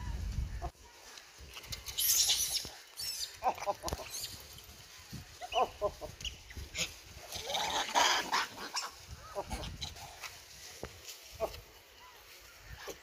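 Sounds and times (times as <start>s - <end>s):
monkeys squeaky calls: 1.8s - 4.7s, 5.3s - 10.1s.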